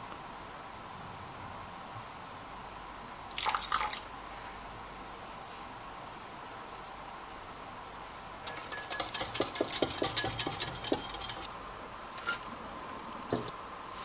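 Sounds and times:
whisk clinking against glass bowl: 8.5 - 11.5.

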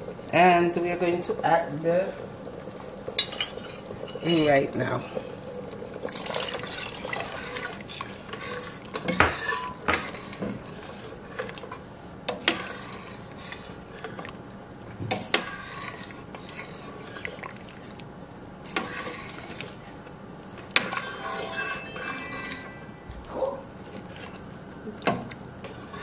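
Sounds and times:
metal spoon stirring soup in pot: 6.5 - 14.4.

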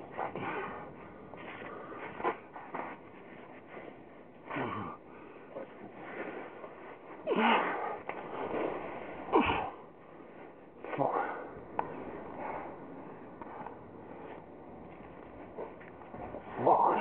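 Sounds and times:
person breathing hard: 0.1 - 2.3
person grunting: 4.5 - 5.0, 7.3 - 7.9, 16.5 - 17.0.

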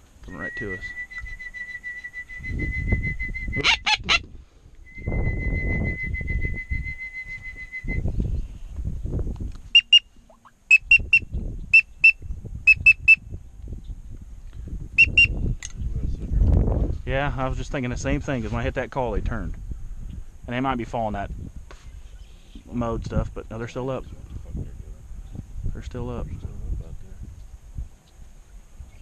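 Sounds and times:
wind buffeting microphone: 2.2 - 29.0
duck call whistle: 3.3 - 4.2, 9.7 - 10.1, 10.7 - 13.2, 15.0 - 15.4.

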